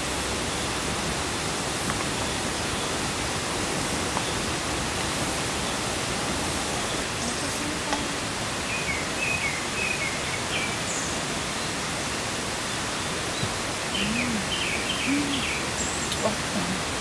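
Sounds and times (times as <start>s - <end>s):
outdoor background hiss: 0.0s - 17.0s
small birds chirping: 12.7s - 17.0s.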